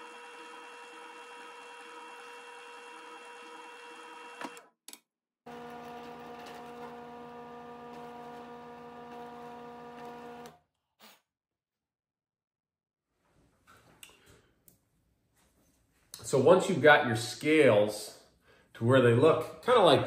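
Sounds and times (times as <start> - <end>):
drill press motor drilling: 0.0 - 4.7, 5.5 - 10.6
second drill press humming: 0.0 - 4.7, 5.5 - 10.6.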